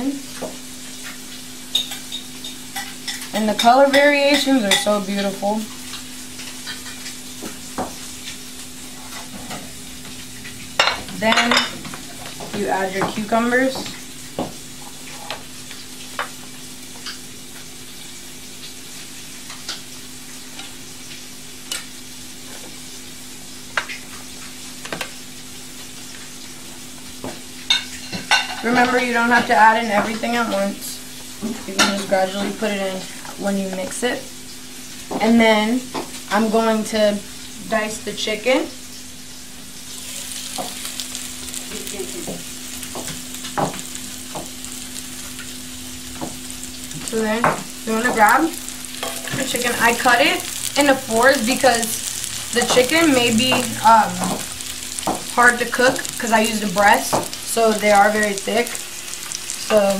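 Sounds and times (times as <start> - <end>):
chicken sizzling on electric grill: 0.0 - 59.9.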